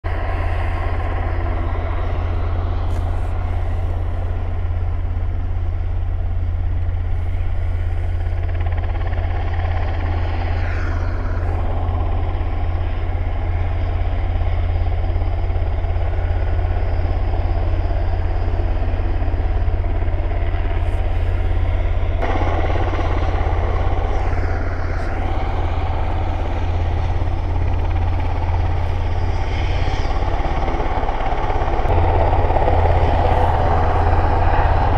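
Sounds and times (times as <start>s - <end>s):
helicopter turbine and rotor noise: 0.0s - 34.9s
strong low hum: 0.0s - 34.9s.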